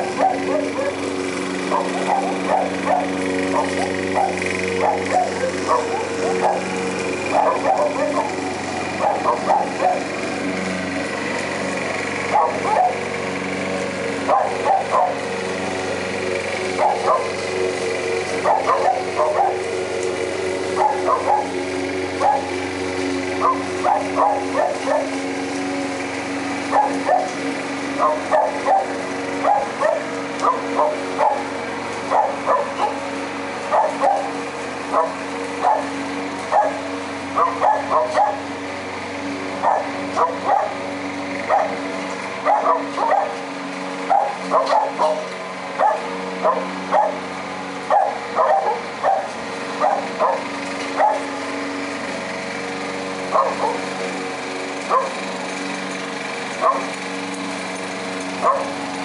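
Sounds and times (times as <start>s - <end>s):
lawn mower engine running: 0.0s - 59.0s
dog barking: 0.2s - 1.0s, 1.7s - 6.7s, 7.3s - 8.3s, 9.0s - 10.0s, 12.3s - 13.0s, 14.3s - 15.2s, 16.8s - 17.3s, 18.4s - 19.6s, 20.8s - 21.5s, 22.2s - 22.5s, 23.4s - 25.1s, 26.7s - 27.3s, 28.0s - 31.4s, 32.1s - 33.0s, 33.7s - 34.3s, 34.9s - 35.9s, 36.5s - 36.8s, 37.4s - 38.4s, 39.6s - 40.8s, 41.5s - 41.8s, 42.4s - 43.4s, 44.1s - 45.2s, 45.8s - 47.2s, 47.9s - 50.4s, 51.0s - 51.3s, 53.3s - 53.8s, 54.9s - 55.2s, 56.6s - 56.9s, 58.4s - 58.7s.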